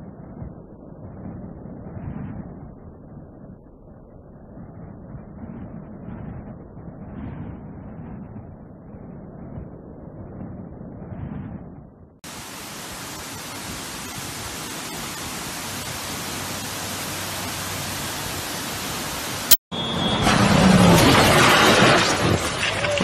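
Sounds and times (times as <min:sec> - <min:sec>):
waterfall rushing: 0:12.3 - 0:19.6.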